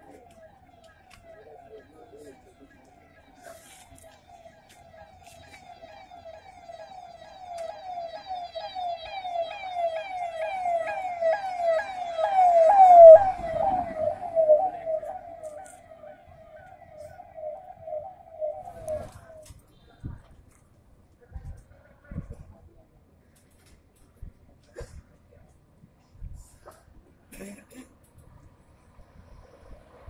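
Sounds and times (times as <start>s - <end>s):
electronic siren wailing: 0.0s - 19.6s
vehicle passing rumble: 11.3s - 19.4s.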